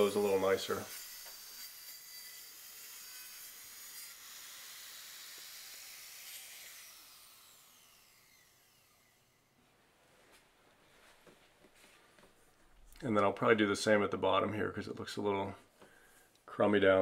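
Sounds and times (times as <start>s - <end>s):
power tool trimming wood: 0.0s - 9.5s.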